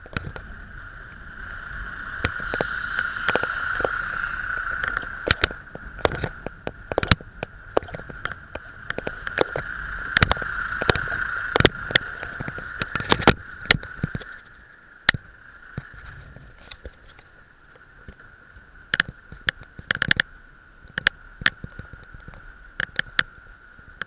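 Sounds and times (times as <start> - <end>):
road noise rumble: 0.0 - 24.0
steady whine: 0.0 - 24.0
bicycle knocks and rattles: 1.9 - 14.5, 18.9 - 20.3.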